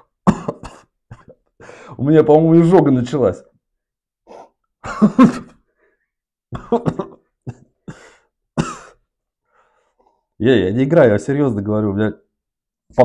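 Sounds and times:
man clearing his throat: 0.2 - 1.5, 4.3 - 5.6, 6.5 - 9.0
man coughing: 0.2 - 1.5, 4.3 - 5.6, 6.5 - 9.1.

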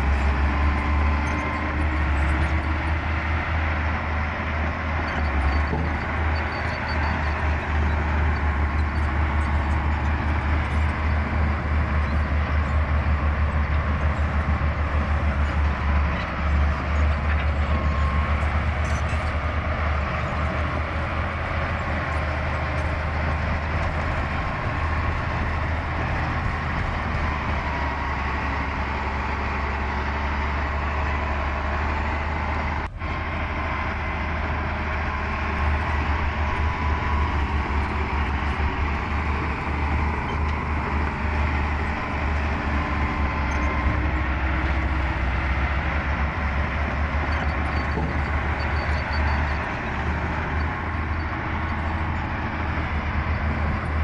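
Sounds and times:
heavy diesel machinery rumbling: 0.0 - 54.0.

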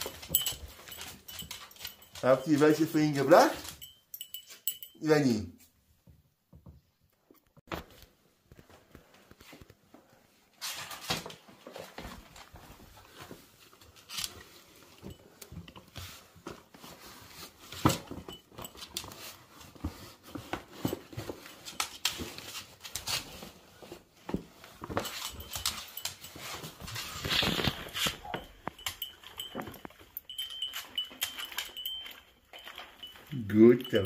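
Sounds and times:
dog rummaging rustles: 0.0 - 4.9, 10.6 - 34.0.

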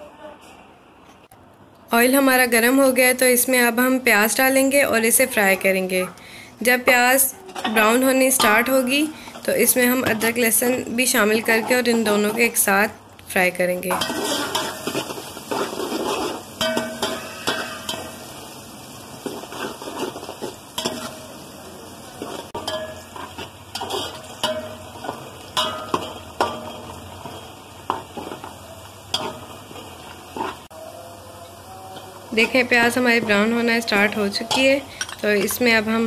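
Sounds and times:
onions sizzling in hot oil: 7.8 - 36.0
spoon scraping and knocking pot: 9.4 - 12.6, 13.9 - 18.2.

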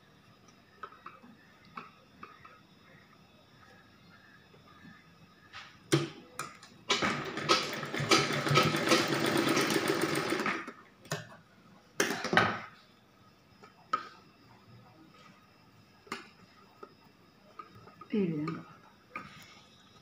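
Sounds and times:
sewing machine stitching: 6.9 - 10.7.

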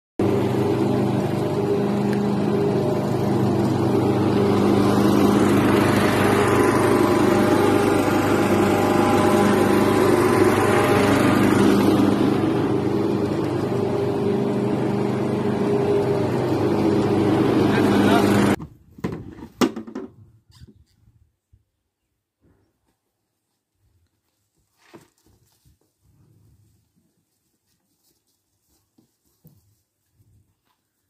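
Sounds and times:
lawn mower engine running: 0.2 - 18.6.

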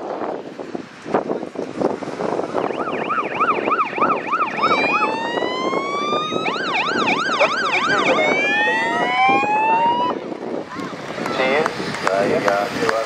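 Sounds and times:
emergency vehicle sirens: 2.0 - 10.6.

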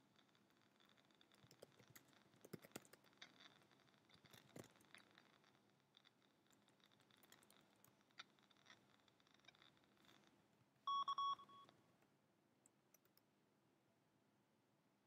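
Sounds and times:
faint steady high tone: 10.8 - 11.8.

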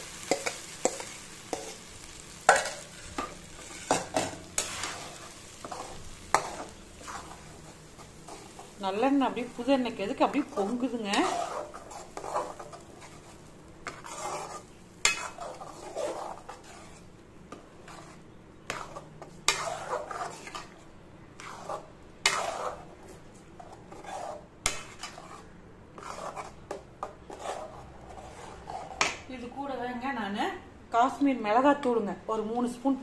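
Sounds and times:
metal spatula scraping pan: 0.0 - 20.8, 21.4 - 23.0, 23.6 - 29.2.

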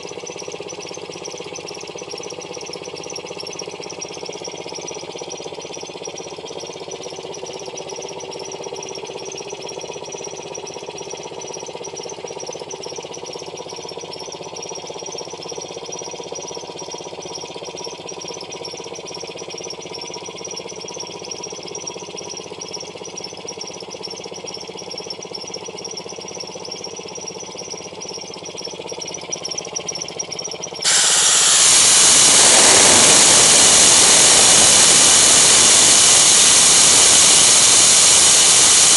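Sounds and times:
air compressor running: 30.8 - 38.9
compressed air hissing from nozzle: 30.8 - 38.9.

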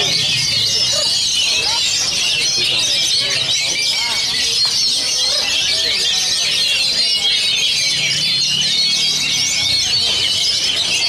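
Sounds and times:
birds whistling and chirping: 0.0 - 11.0.

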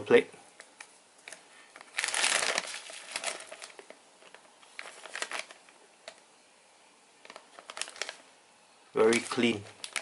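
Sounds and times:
plastic bags crinkling: 1.2 - 6.2, 7.2 - 8.3, 9.0 - 10.0.

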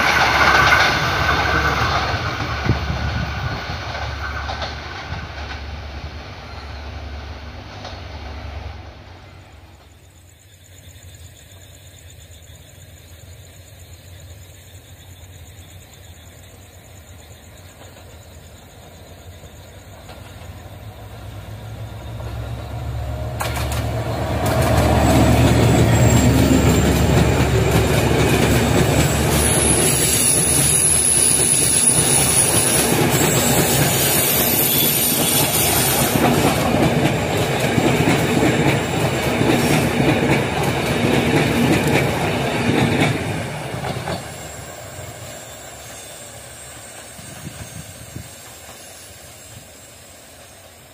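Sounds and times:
wheels clacking over rail joints: 0.0 - 10.1, 19.6 - 49.6
diesel locomotive engine rumble: 0.0 - 50.9
high-pitched wheel squeal: 24.8 - 27.6, 28.8 - 36.3.

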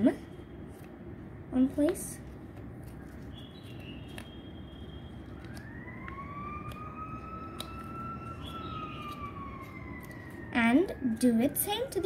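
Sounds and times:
steady low hum: 0.0 - 12.0
paper being handled: 0.6 - 10.5
faint emergency siren wailing: 3.3 - 12.0.

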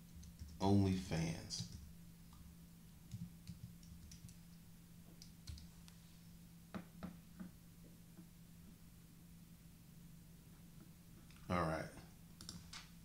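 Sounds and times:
low steady hum: 0.0 - 13.0
computer keyboard typing: 0.1 - 0.6, 3.1 - 4.5, 5.2 - 5.7, 12.4 - 12.8.

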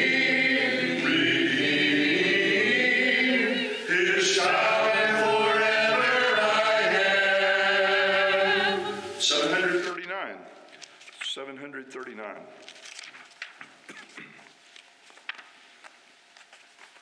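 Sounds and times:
congregation singing a hymn: 0.0 - 10.0.

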